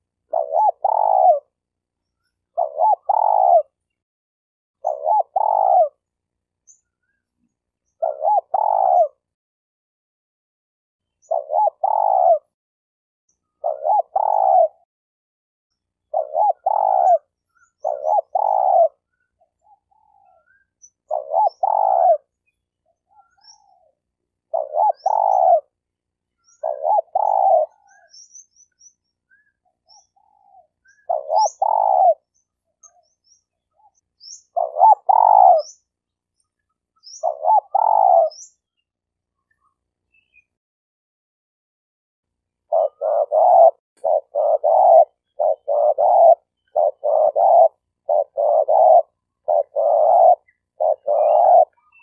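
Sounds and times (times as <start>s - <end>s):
dove cooing: 0.0s - 1.6s, 2.5s - 3.8s, 4.8s - 6.1s, 7.9s - 9.3s, 11.2s - 12.6s, 13.4s - 14.9s, 16.0s - 25.8s, 26.4s - 28.3s, 29.3s - 35.8s, 37.0s - 38.6s, 42.7s - 52.0s
small birds chirping: 0.0s - 4.1s, 4.8s - 9.4s, 11.0s - 12.5s, 13.3s - 14.8s, 15.7s - 40.6s, 42.4s - 52.0s.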